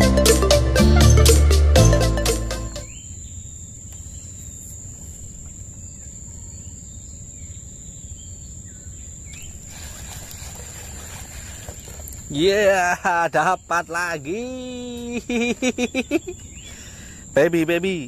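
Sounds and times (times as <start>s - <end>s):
background music: 0.0s - 2.9s
faint bird chirps: 2.8s - 12.4s, 13.5s - 17.4s
insect high-pitched drone: 8.6s - 18.0s.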